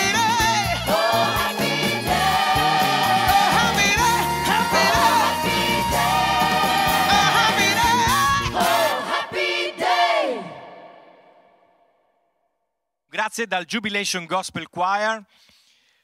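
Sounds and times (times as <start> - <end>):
instrumental accompaniment: 0.0 - 9.2
gospel choir singing: 0.0 - 11.6.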